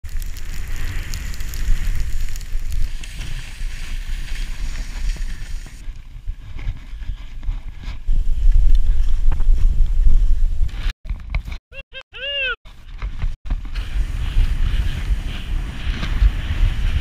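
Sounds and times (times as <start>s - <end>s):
wind rumbling on microphone: 0.0s - 11.5s, 12.7s - 17.0s
skis scraping snow: 0.1s - 9.0s, 13.5s - 17.0s.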